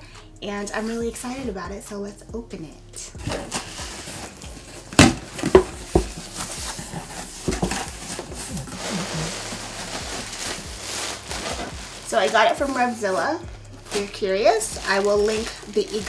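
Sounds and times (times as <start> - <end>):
plastic wrapping rustling: 3.2 - 16.0
cardboard box flaps knocking: 5.0 - 8.8.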